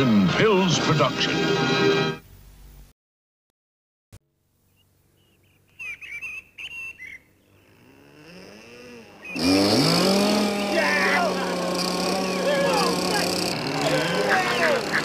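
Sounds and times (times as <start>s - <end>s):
wavering bird whistles: 5.2s - 7.3s
model boat motor whining: 7.2s - 15.0s.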